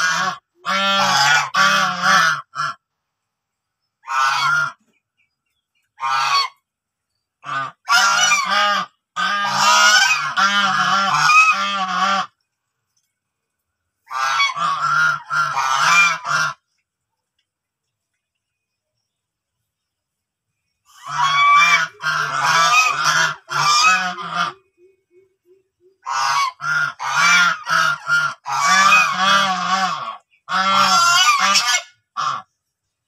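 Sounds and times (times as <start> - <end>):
geese honking: 0.0 - 3.0, 4.0 - 5.0, 5.8 - 6.7, 7.4 - 12.4, 14.0 - 16.8, 20.9 - 32.6.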